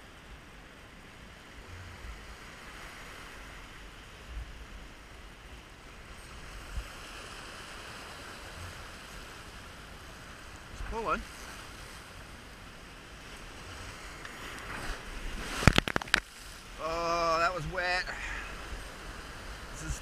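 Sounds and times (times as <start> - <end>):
ocean swell washing over rocks: 6.5 - 20.0.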